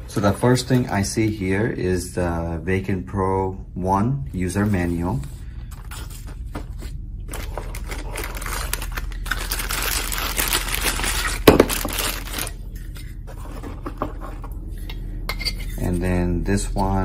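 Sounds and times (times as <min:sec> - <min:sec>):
plastic bags crinkling: 0:07.3 - 0:12.7.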